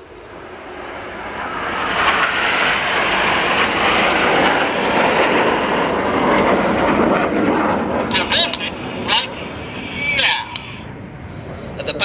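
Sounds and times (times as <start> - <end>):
jets flying past: 0.0 - 12.0.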